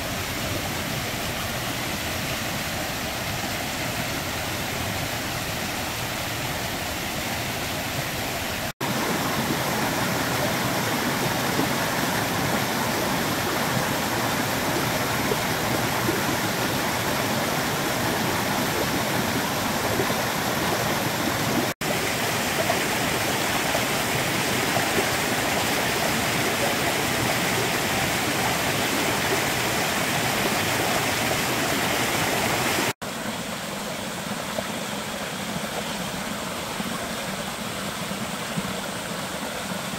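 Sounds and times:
stream rushing over rocks: 0.0s - 39.9s.

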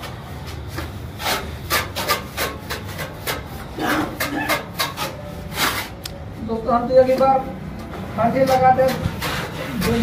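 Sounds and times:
trowel scraping wet mortar: 8.4s - 10.0s.

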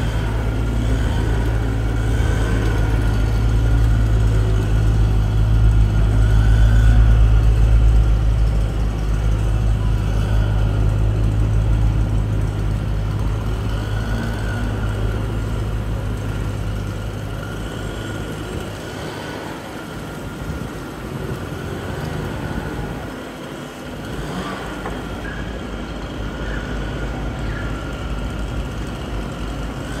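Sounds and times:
car engine idling: 0.0s - 30.0s.

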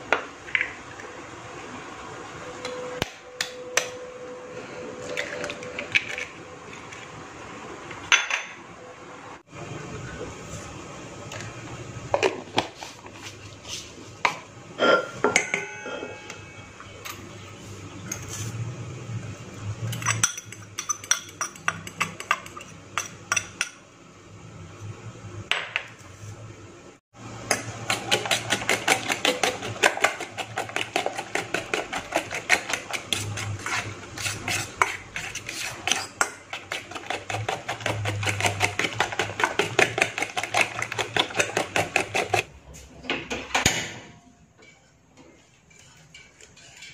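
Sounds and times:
clinks on a steel bowl: 14.8s - 17.2s
fork beating eggs in a bowl: 20.0s - 23.6s, 27.8s - 42.5s.

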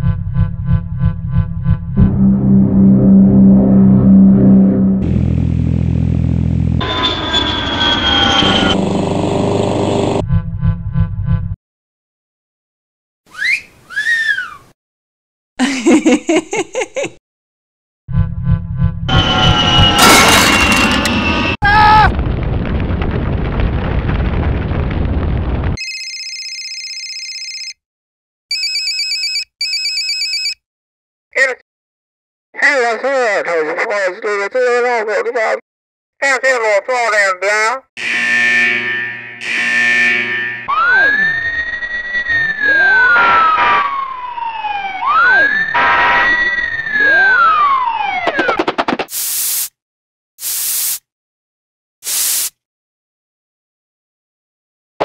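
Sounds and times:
fire engine siren wailing: 2.0s - 10.2s, 19.1s - 22.1s, 38.0s - 48.3s
fire burning: 19.6s - 25.8s
electronic telephone ringing: 25.8s - 27.8s, 28.5s - 30.6s.

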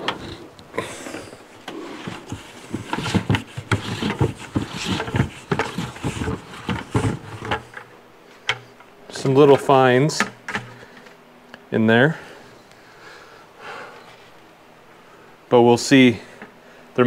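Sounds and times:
plastic bucket knocking and scraping: 1.7s - 7.8s.

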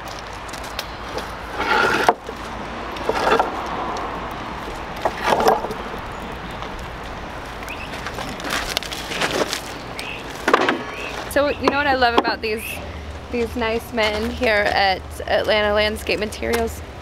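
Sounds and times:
background noise: 0.0s - 17.0s
stone slabs scraping and knocking: 1.1s - 2.3s, 3.0s - 3.6s, 5.0s - 5.8s.

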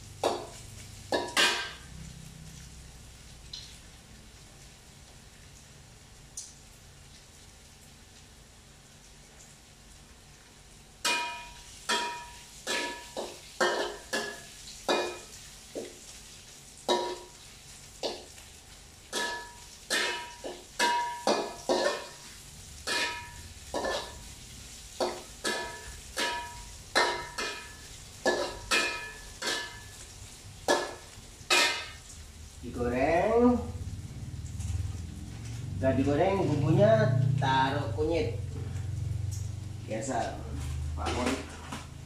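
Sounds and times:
metal spatula clanking on pan: 0.2s - 1.9s, 11.0s - 15.9s, 16.9s - 17.4s, 18.0s - 18.3s, 19.1s - 24.3s, 25.0s - 30.0s, 30.7s - 32.1s.

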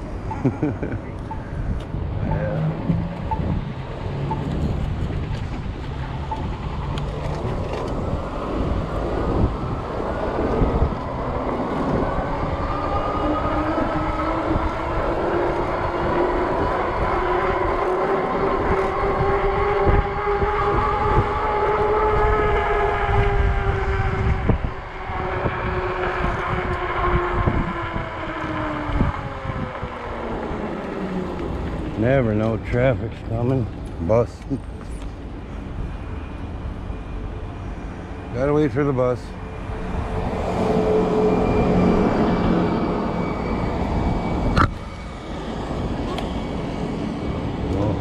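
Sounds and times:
wind rushing over microphone: 0.0s - 48.0s
electric bike motor whine: 6.3s - 32.0s.

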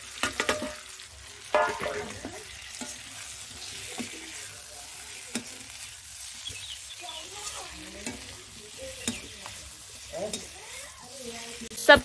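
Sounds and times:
food sizzling in a pan: 0.0s - 12.0s
spatula scraping a pan: 0.1s - 11.9s.

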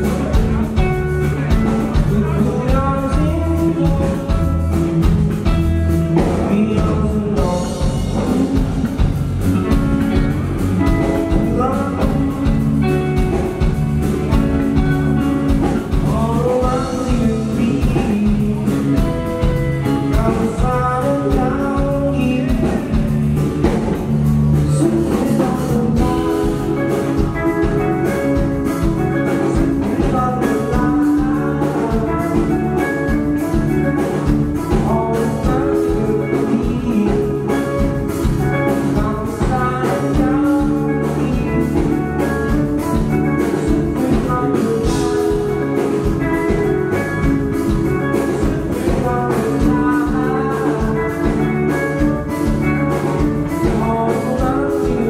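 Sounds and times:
drums playing a steady beat: 0.0s - 55.0s
electric guitar: 0.0s - 55.0s
man singing: 0.0s - 55.0s.

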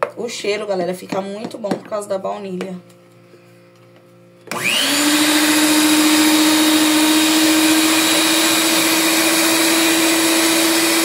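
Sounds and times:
stand mixer motor whine: 4.5s - 11.0s.

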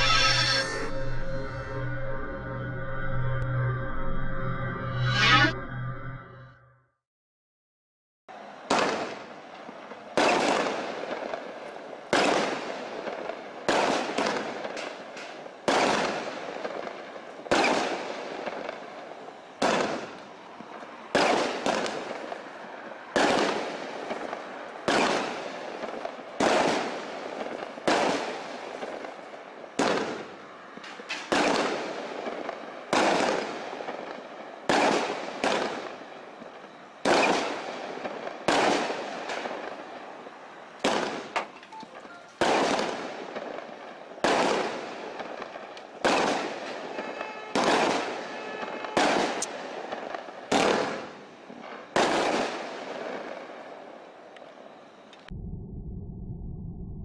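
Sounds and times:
firework bangs: 8.3s - 41.6s, 42.3s - 53.9s.

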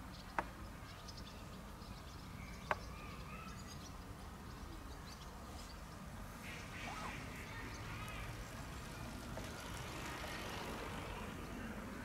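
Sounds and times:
faint bird chirps: 0.0s - 8.4s
low outdoor rumble: 3.9s - 12.0s.

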